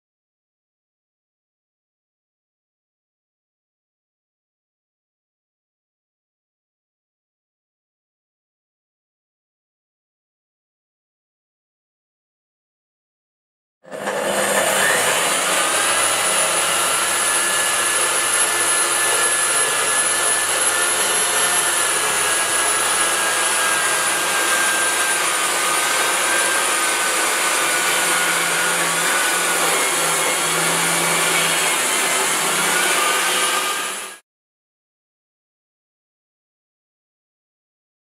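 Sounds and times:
wall chaser cutting concrete: 0:13.8 - 0:34.2.

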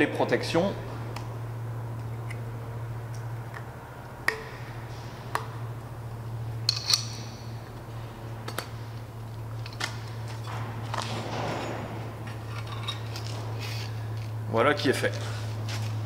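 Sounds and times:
steady low hum: 0:00.0 - 0:16.0
metal hose fittings clinking: 0:06.6 - 0:07.4, 0:12.2 - 0:14.3.

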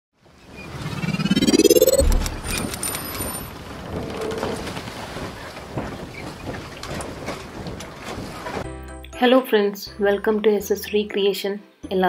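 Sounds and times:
rising whoosh: 0:00.6 - 0:03.0
low boom: 0:01.1 - 0:02.8.

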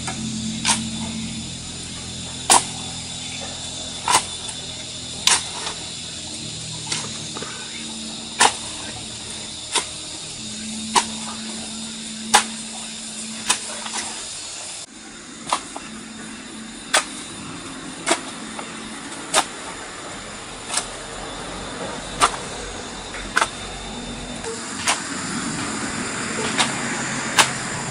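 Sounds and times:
steady hiss: 0:00.0 - 0:27.9
shovel chopping into soil: 0:05.2 - 0:05.8, 0:12.3 - 0:12.6, 0:13.4 - 0:14.0, 0:16.9 - 0:17.2.

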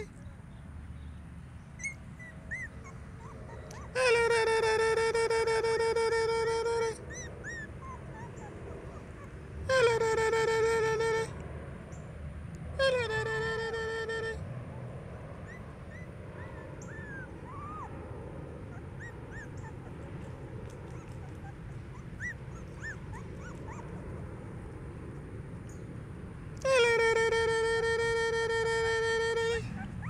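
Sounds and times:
puppies squeaking and whimpering: 0:01.8 - 0:04.4, 0:06.9 - 0:10.0, 0:15.5 - 0:18.0, 0:18.6 - 0:24.0, 0:29.6 - 0:30.0.

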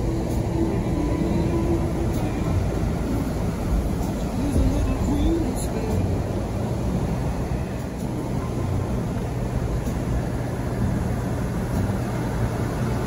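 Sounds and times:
constant low hum: 0:00.0 - 0:13.0
vehicle engine and tyre rumble: 0:00.0 - 0:13.0.

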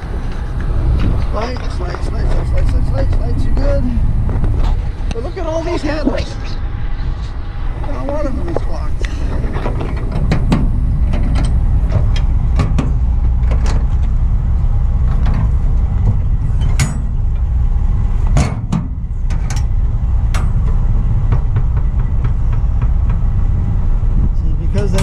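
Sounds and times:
steady low rumble: 0:00.0 - 0:25.0
metal latches clanking and clicking: 0:09.3 - 0:14.0, 0:16.6 - 0:17.2
sharp metal knocks: 0:09.5 - 0:13.8, 0:16.1 - 0:17.3, 0:18.3 - 0:23.4.

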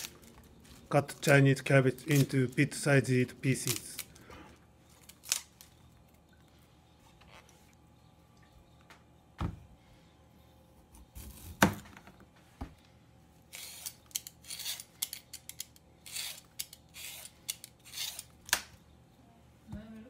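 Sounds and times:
blade rasping off skin: 0:13.5 - 0:18.3.

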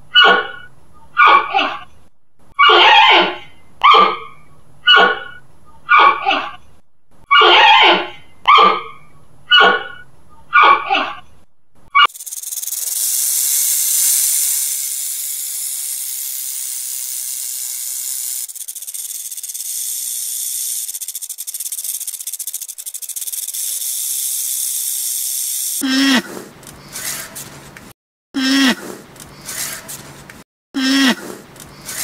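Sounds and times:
snake hissing: 0:12.0 - 0:25.9.

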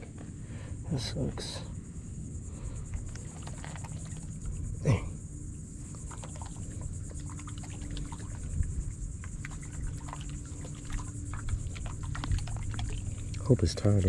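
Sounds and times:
low rumble of wind: 0:00.0 - 0:14.0
man grunting: 0:04.8 - 0:05.2.

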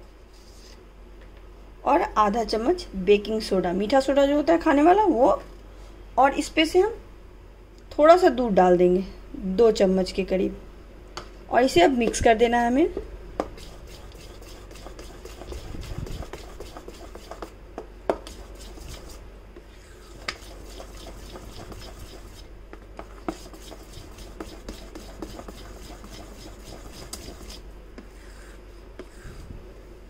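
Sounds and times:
spoon stirring thick batter: 0:13.4 - 0:29.4
spoon scraping metal bowl: 0:13.6 - 0:17.5, 0:20.0 - 0:22.4.

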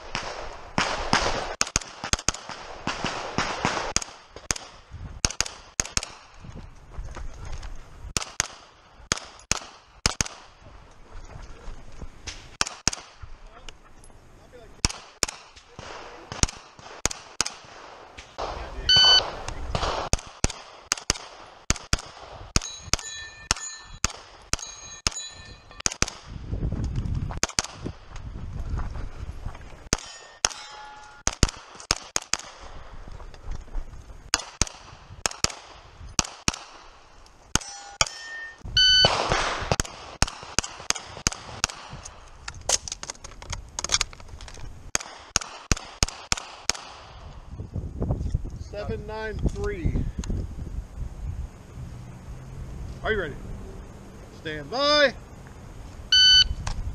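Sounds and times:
gunshots: 0:00.0 - 0:06.4, 0:08.1 - 0:10.6, 0:12.5 - 0:13.2, 0:14.8 - 0:25.2, 0:25.8 - 0:26.3, 0:27.4 - 0:27.9, 0:29.9 - 0:32.8, 0:34.3 - 0:38.1, 0:38.9 - 0:42.1, 0:44.9 - 0:47.2
steel targets clanging: 0:22.6 - 0:25.9, 0:29.9 - 0:31.3, 0:37.5 - 0:39.1.

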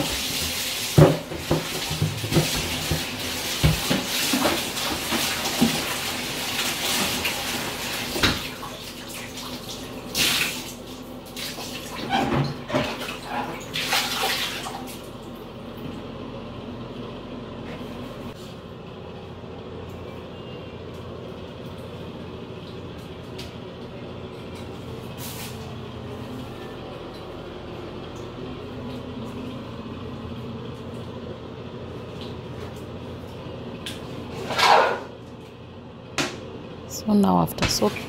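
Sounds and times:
water splashing into bathtub: 0:00.0 - 0:15.1.

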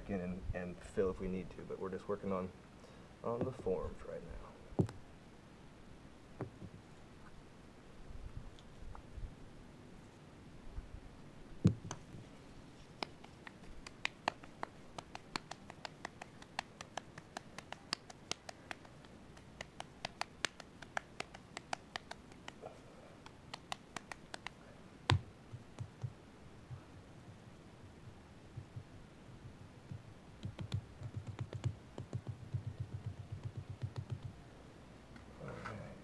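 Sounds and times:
hands kneading wet clay: 0:12.8 - 0:24.6.

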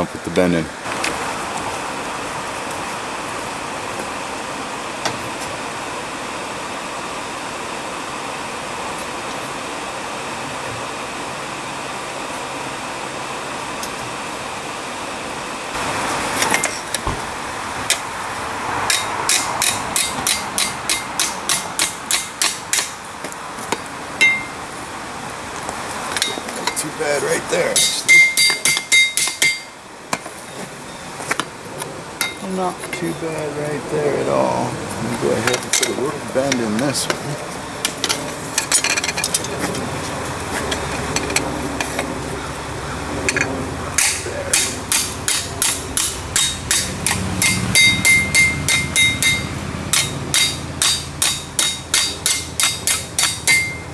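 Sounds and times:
steady machine hum: 0:00.0 - 0:53.9
hammer striking steel on anvil: 0:18.9 - 0:23.0, 0:24.2 - 0:24.6, 0:27.8 - 0:30.2, 0:43.3 - 0:53.9
loud ringing hammer blow: 0:27.8 - 0:29.8, 0:44.0 - 0:53.9.

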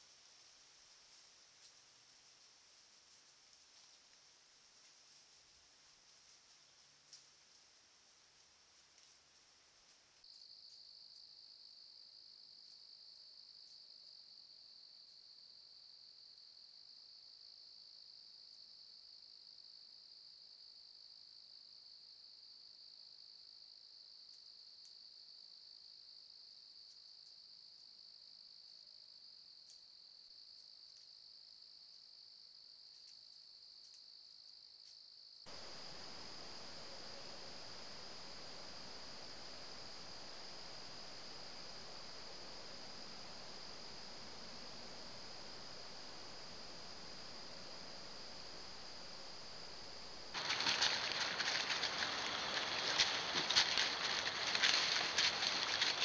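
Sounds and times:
crickets chirping: 0:00.0 - 0:56.0
camera hiss: 0:50.3 - 0:56.0.

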